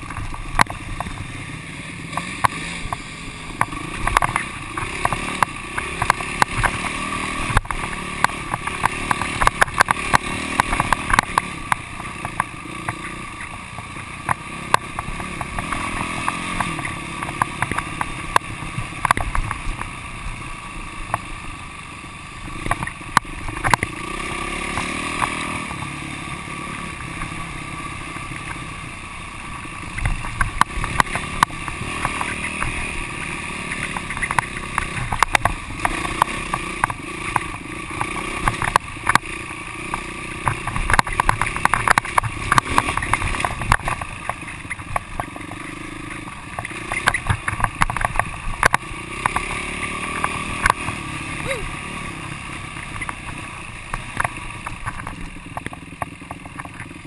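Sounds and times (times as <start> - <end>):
dirt bike engine running: 0.0 - 57.0
sharp knocks and rattles: 2.1 - 19.9, 22.5 - 24.0, 29.9 - 51.1, 52.5 - 57.0.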